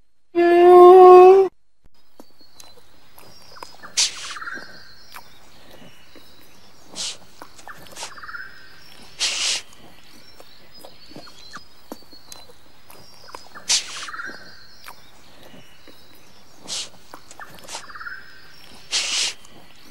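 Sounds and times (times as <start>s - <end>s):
outdoor background: 0.0s - 19.9s
sharp breathy animal bursts: 6.9s - 7.3s, 9.2s - 9.7s, 13.7s - 14.2s, 16.6s - 17.0s, 18.8s - 19.5s.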